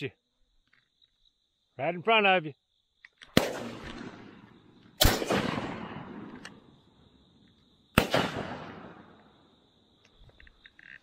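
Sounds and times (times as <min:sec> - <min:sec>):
shotgun shots with echo: 0:03.3 - 0:04.4, 0:05.0 - 0:06.3, 0:08.0 - 0:09.1.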